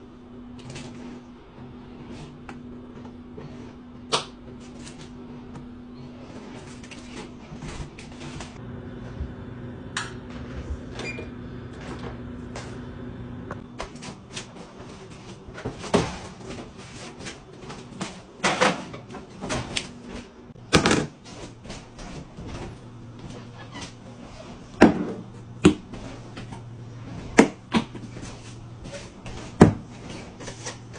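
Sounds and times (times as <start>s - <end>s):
low hum: 0.0s - 14.2s
oven door and pans clattering: 17.7s - 20.3s.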